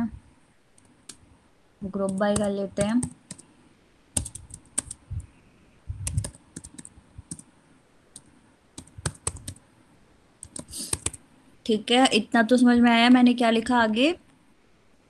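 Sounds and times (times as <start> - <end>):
computer keyboard typing: 1.9 - 3.5, 4.2 - 5.3, 6.0 - 7.5, 8.1 - 9.6, 10.4 - 11.2.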